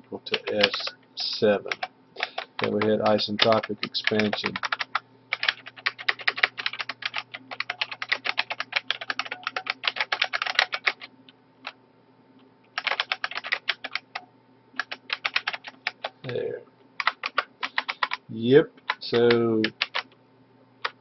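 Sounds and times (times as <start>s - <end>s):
typing on computer keyboard: 0.3s - 11.1s, 12.8s - 14.2s, 14.8s - 16.4s, 17.0s - 18.2s, 18.8s - 20.1s.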